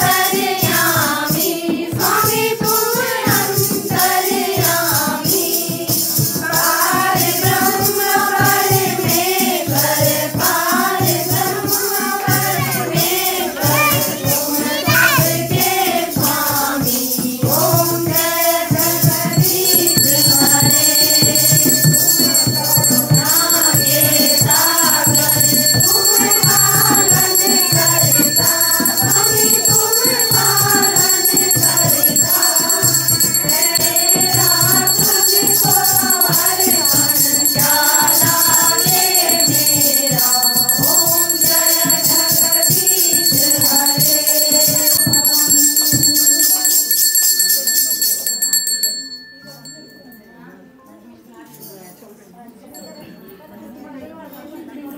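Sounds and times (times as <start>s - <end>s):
group singing in chorus: 0.0s - 46.1s
shaken rattle percussion: 0.0s - 50.2s
steady high ringing: 19.0s - 50.5s.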